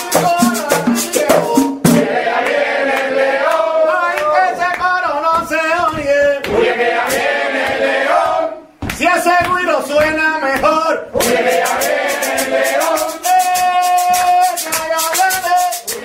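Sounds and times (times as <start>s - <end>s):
hand percussion strokes: 0.0s - 2.2s, 11.2s - 16.0s
men singing in chorus: 0.0s - 5.7s, 6.3s - 8.6s, 11.2s - 16.0s.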